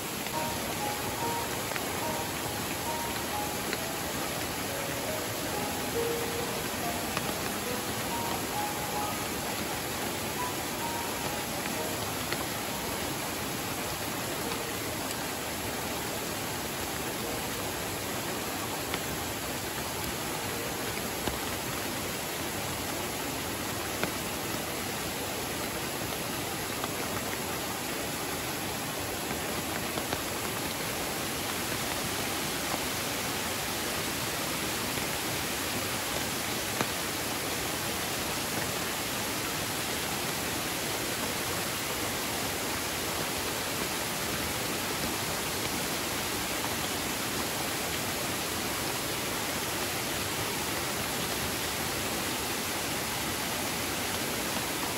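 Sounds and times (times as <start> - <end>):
waterfall rushing: 0.0 - 54.9.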